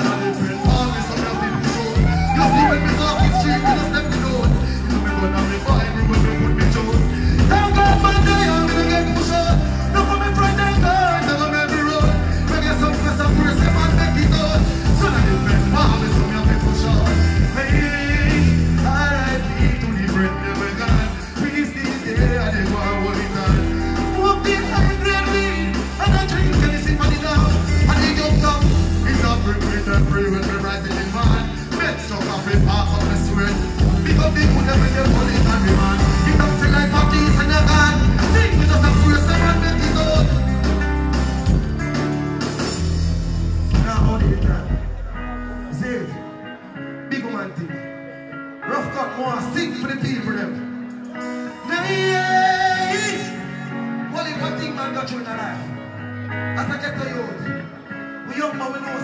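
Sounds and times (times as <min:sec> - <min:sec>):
man deejaying over music: 0:00.0 - 0:40.4
heavy bass-line riddim: 0:00.0 - 0:46.0.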